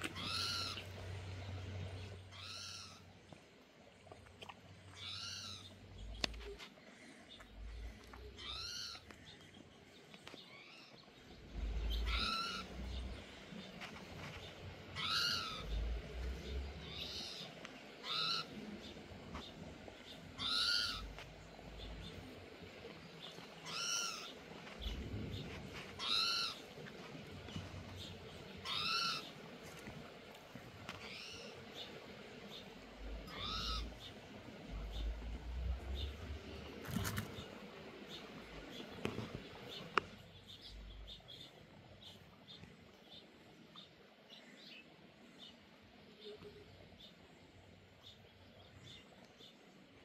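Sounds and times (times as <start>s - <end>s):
drawn-out animal calls: 0.0s - 3.1s, 11.5s - 13.3s, 14.8s - 18.7s, 20.2s - 22.1s, 23.5s - 29.6s, 33.0s - 37.2s.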